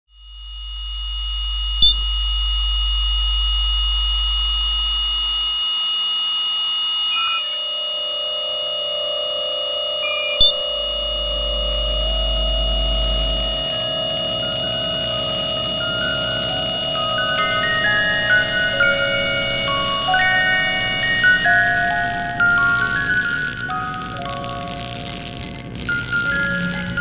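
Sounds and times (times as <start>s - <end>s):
lower steady tone: 0.1s - 27.0s
low hum: 0.2s - 5.6s, 10.4s - 27.0s
high electronic tones: 0.4s - 2.3s, 6.6s - 27.0s
crackly glitch: 7.1s - 27.0s.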